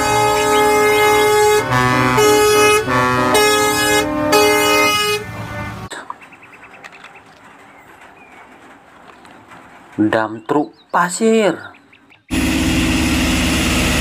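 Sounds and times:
truck air horns: 0:00.0 - 0:05.9, 0:12.3 - 0:14.0.

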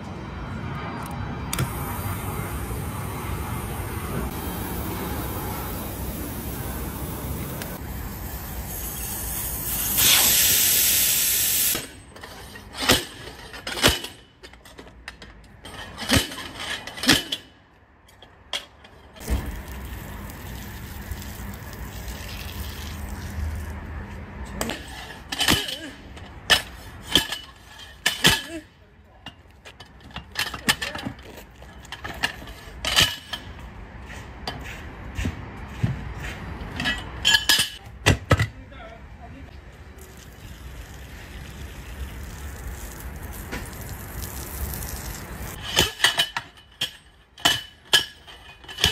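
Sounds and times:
loud hiss of air: 0:01.6 - 0:12.0.

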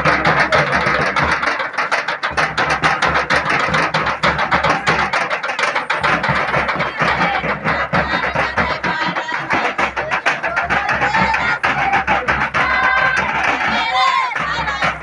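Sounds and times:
hand drums fast rhythm: 0:00.0 - 0:15.0.

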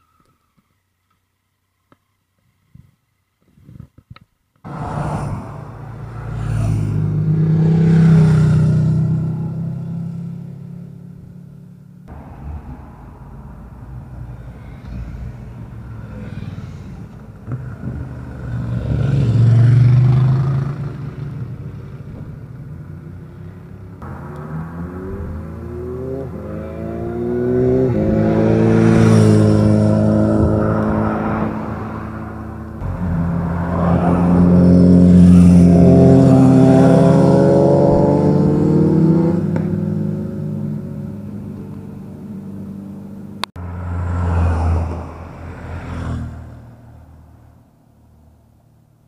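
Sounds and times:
motorcycles revving past: 0:04.7 - 0:10.8, 0:14.3 - 0:22.0, 0:23.4 - 0:47.0.

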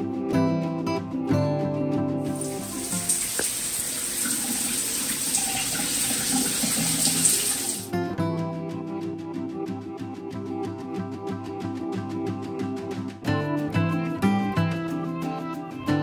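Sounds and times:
background music: 0:00.0 - 0:16.0
tap water running into sink: 0:02.3 - 0:07.9.

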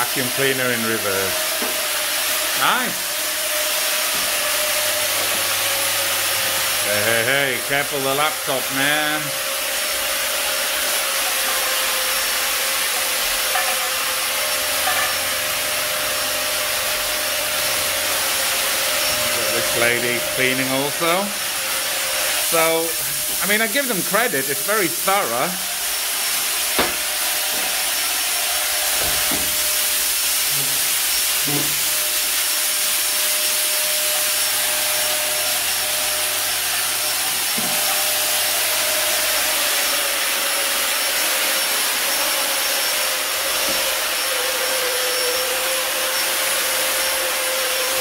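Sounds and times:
fogger blower hissing: 0:00.0 - 0:48.0.

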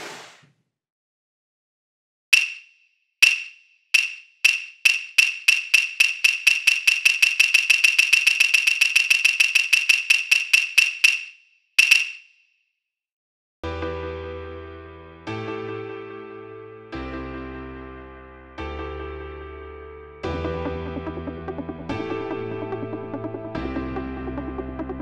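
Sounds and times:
wooden clappers clacking: 0:02.4 - 0:12.2.

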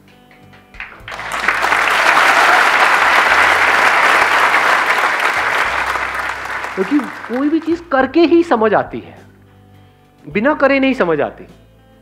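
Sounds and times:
audience applauding: 0:00.8 - 0:07.9.

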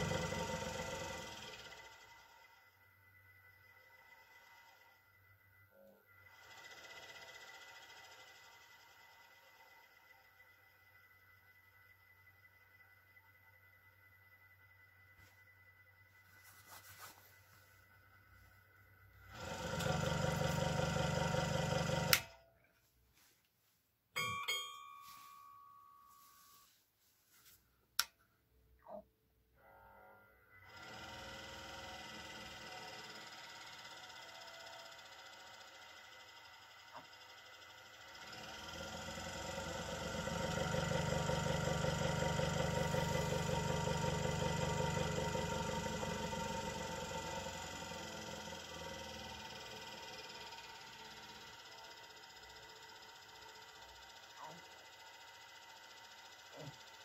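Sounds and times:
scroll saw running: 0:00.0 - 0:02.7, 0:19.2 - 0:22.4, 0:30.6 - 0:57.0.

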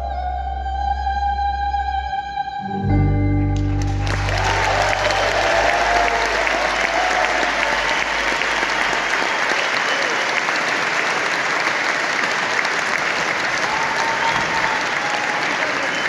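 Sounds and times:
band low note: 0:00.0 - 0:09.1
audience applauding: 0:03.6 - 0:16.0
people shouting: 0:04.2 - 0:09.2.

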